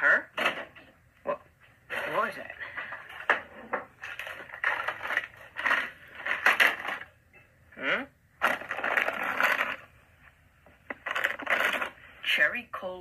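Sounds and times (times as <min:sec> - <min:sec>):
plastic package crinkling: 0:03.1 - 0:07.1, 0:08.4 - 0:10.0, 0:10.8 - 0:12.1.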